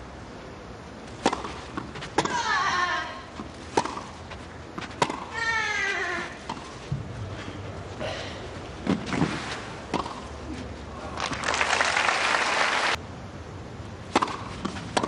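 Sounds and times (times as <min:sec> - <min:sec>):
tennis ball being struck: 0:01.2 - 0:02.5, 0:03.7 - 0:04.2, 0:04.8 - 0:05.4, 0:09.9 - 0:10.2, 0:14.1 - 0:15.0
woman shrieking: 0:02.3 - 0:03.3.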